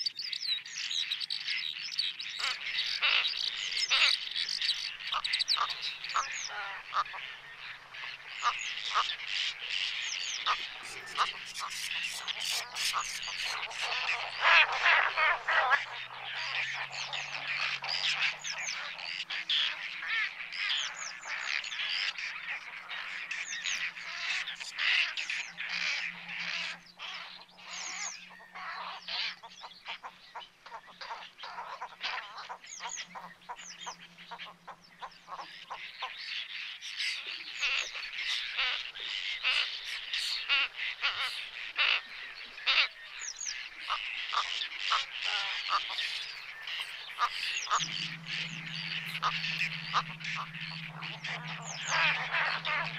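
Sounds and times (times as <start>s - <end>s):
flock of birds calling: 0.0s - 52.9s.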